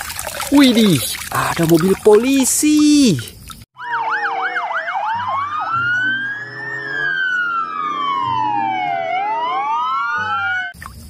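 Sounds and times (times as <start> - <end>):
police sirens yelping and wailing: 3.8 - 10.8.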